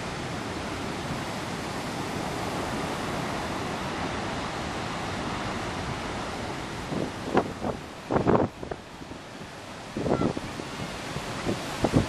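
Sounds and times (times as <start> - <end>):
storm waves breaking on beach: 0.0 - 12.0.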